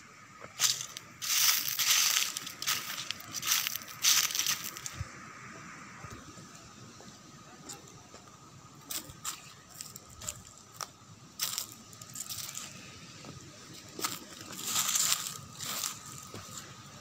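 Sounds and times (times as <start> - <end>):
footsteps crunching dry leaves: 0.4 - 5.1, 8.9 - 17.0.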